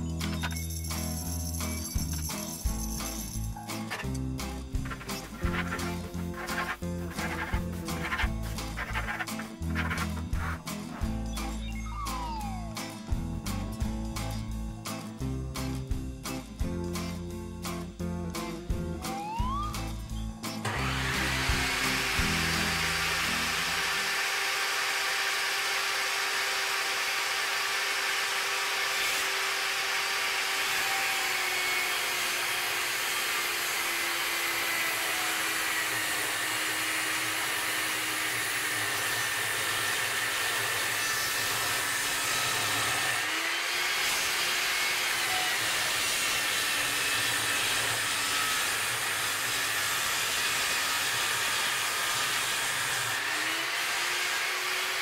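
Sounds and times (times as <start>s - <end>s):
table saw motor whine: 3.8s - 13.1s, 19.0s - 55.0s
saw blade hissing through wood: 4.8s - 11.2s, 20.7s - 55.0s.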